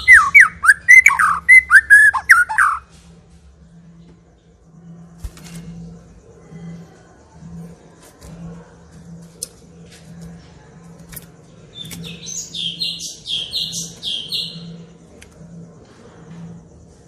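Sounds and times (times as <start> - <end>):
bird calling and singing: 0.0 - 2.9, 11.6 - 14.9.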